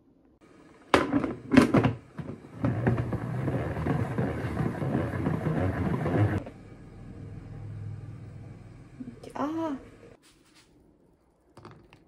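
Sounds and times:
plastic lid clattering: 0.9s - 5.3s.

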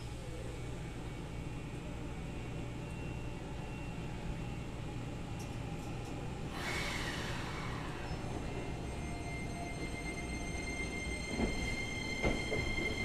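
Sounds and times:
train humming: 0.0s - 13.0s
brake air hiss: 6.5s - 8.6s.

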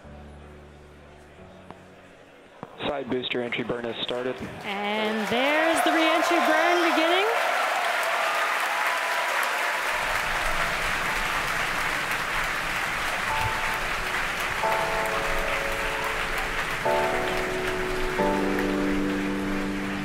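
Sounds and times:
soft background music: 0.0s - 3.7s, 13.3s - 20.0s
crowd applauding and cheering: 2.8s - 20.0s.

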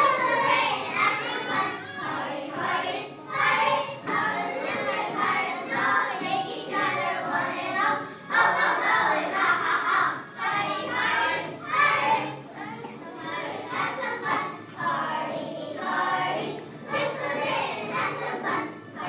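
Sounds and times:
background music: 0.0s - 19.0s
children singing together: 0.0s - 19.0s.

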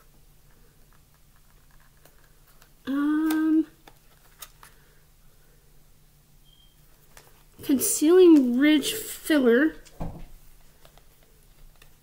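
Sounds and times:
woman humming: 2.9s - 3.8s.

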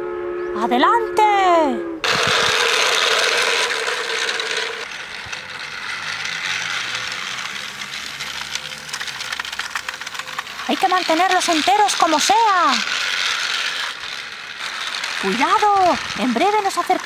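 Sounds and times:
toy train motor whirring: 2.0s - 17.0s.

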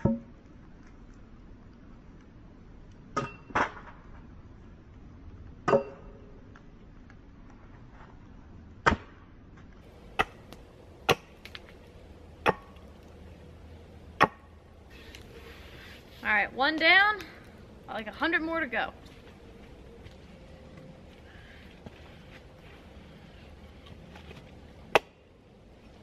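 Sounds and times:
axe chopping wood: 8.8s - 9.2s, 10.1s - 11.6s, 12.4s - 12.8s, 14.2s - 14.5s, 24.9s - 25.2s.

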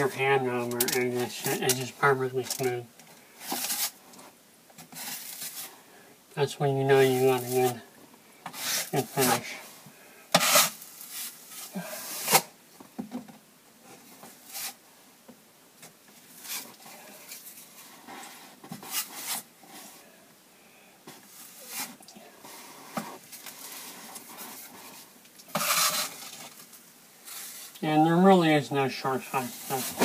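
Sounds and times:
drywall knife scraping: 8.5s - 8.9s, 10.4s - 10.8s, 25.5s - 26.4s.

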